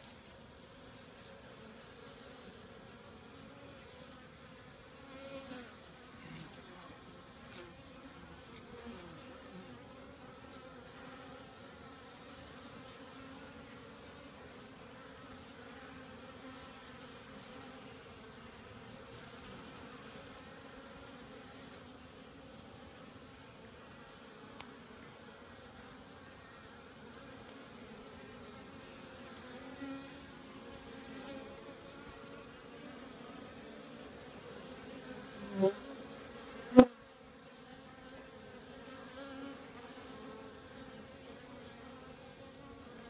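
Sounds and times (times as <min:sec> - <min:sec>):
bee buzzing past: 0:00.0 - 0:43.0
bees humming: 0:00.6 - 0:43.0.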